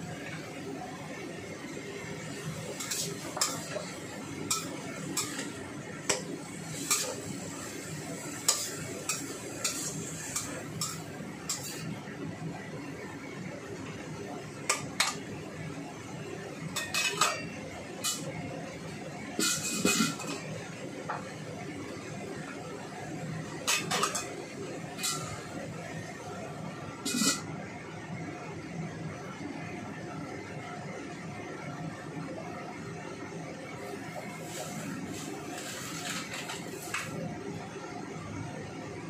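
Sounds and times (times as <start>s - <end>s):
metal spatula scraping a wok: 2.3s - 12.0s, 16.8s - 18.4s, 19.4s - 20.5s, 23.7s - 25.5s, 27.0s - 27.5s, 34.3s - 37.2s.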